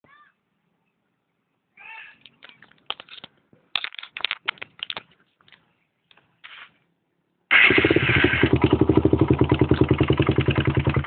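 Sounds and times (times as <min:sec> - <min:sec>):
clicks and knocks: 0:02.2 - 0:05.6.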